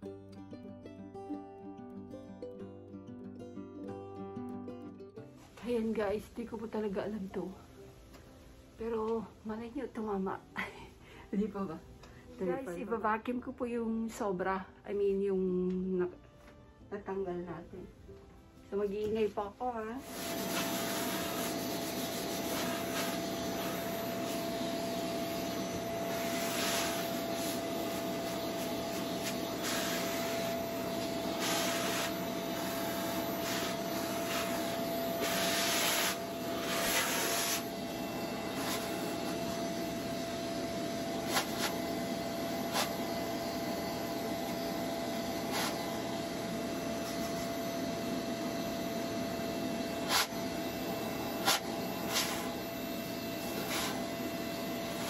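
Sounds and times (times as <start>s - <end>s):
vacuum cleaner running: 19.8s - 55.0s.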